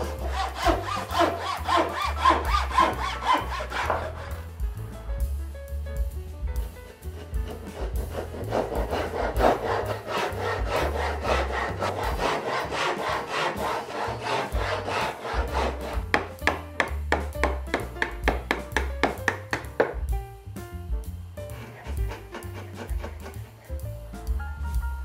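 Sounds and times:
chisel chopping wood: 0.0s - 4.2s, 7.4s - 20.1s
hand saw rasping through wood: 0.0s - 4.5s, 6.8s - 19.8s, 21.4s - 23.8s.

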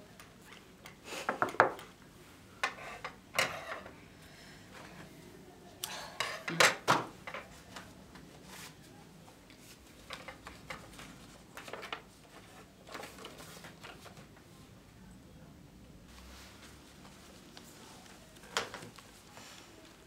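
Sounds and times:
paper and cardboard rustling: 9.6s - 14.5s.

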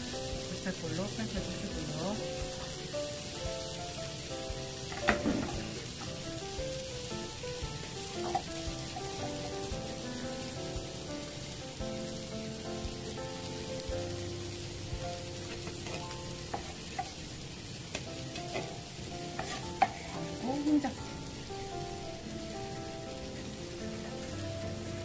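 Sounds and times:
soft melodic background music: 0.0s - 25.0s
steady hiss: 0.0s - 25.0s
sharp knocks: 4.9s - 5.8s.

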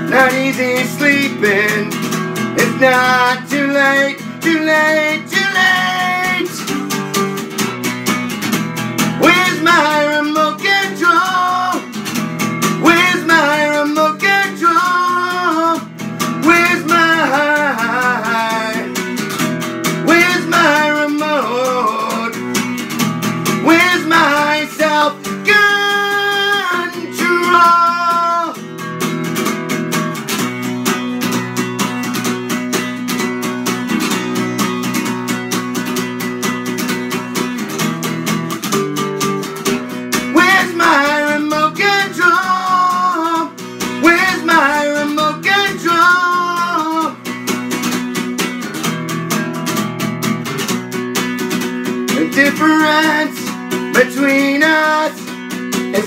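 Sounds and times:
man singing: 0.0s - 7.6s, 9.0s - 28.8s, 39.5s - 47.4s, 51.9s - 56.0s
acoustic guitar strumming: 0.0s - 56.0s.

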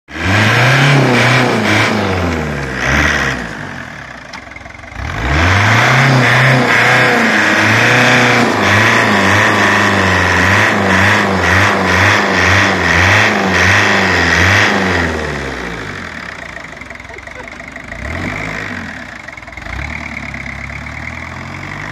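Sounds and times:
tractor engine revving: 0.1s - 21.9s.

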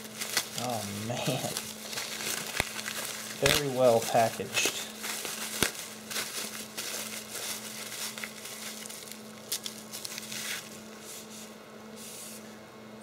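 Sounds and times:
bubble wrap crinkling: 0.0s - 12.4s
steady low hum: 0.0s - 13.0s.

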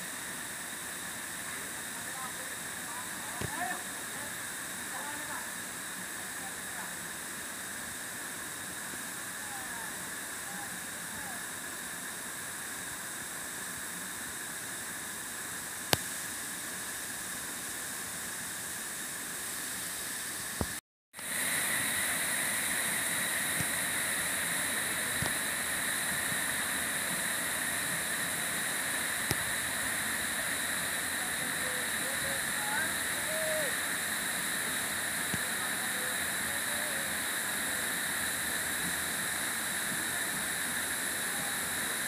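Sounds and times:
waterfall rushing onto rocks: 19.5s - 42.0s.

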